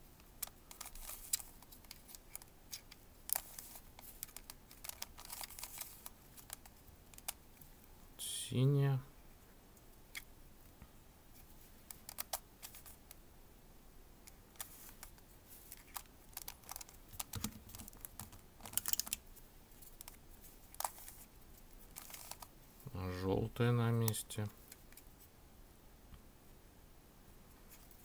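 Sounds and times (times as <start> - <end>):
plastic puzzle pieces clicking: 0.2 - 7.4, 15.7 - 19.2.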